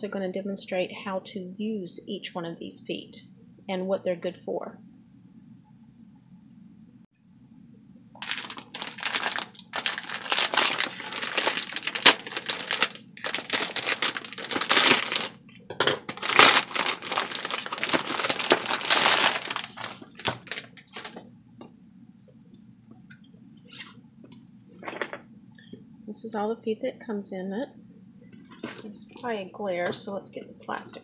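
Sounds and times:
plastic bag crinkling: 0:08.2 - 0:15.4, 0:16.0 - 0:21.2.

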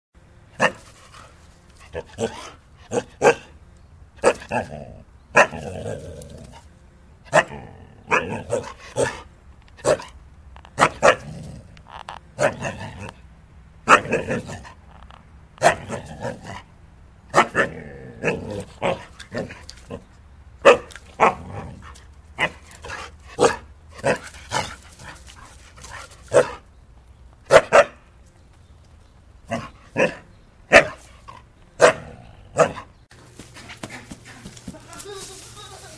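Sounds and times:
dog barking: 0:03.0 - 0:03.5, 0:20.6 - 0:21.4, 0:27.5 - 0:28.0, 0:31.8 - 0:32.9.

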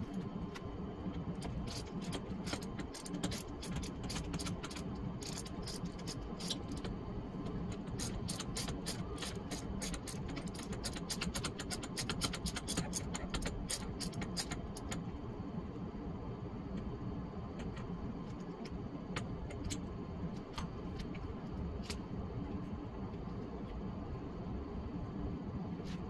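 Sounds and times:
steady low hum: 0:00.0 - 0:26.0
hand ratchet clicking: 0:01.7 - 0:06.9, 0:08.0 - 0:15.0.

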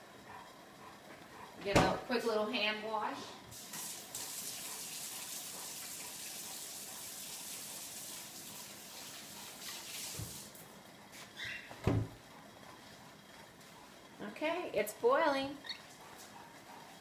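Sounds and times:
water running: 0:03.5 - 0:10.7.

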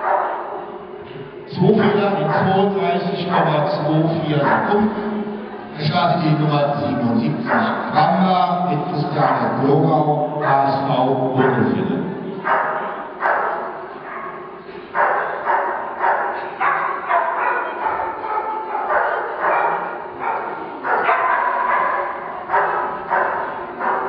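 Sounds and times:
dog barking with echo: 0:00.0 - 0:00.8, 0:01.7 - 0:05.1, 0:07.3 - 0:08.2, 0:11.4 - 0:24.0.

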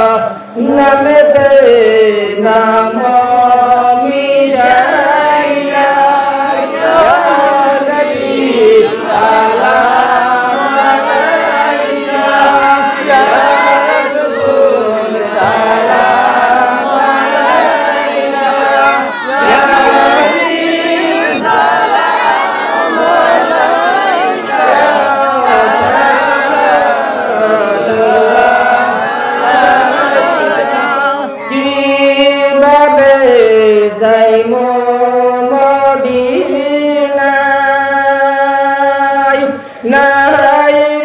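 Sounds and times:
man singing into a microphone: 0:00.0 - 0:21.6, 0:31.0 - 0:41.0
group of voices singing: 0:00.0 - 0:41.0.

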